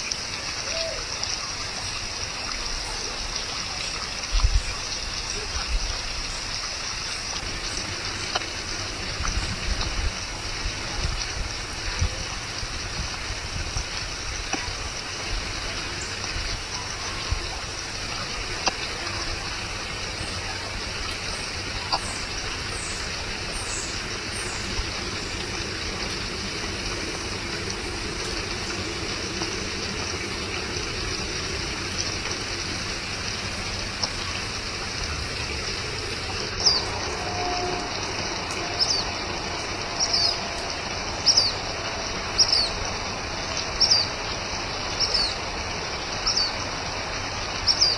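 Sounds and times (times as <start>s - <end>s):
outdoor background hiss: 0.0s - 47.9s
small birds chirping: 13.8s - 32.8s, 41.2s - 41.6s, 42.3s - 42.8s, 43.6s - 44.2s, 44.9s - 45.4s, 47.6s - 47.9s.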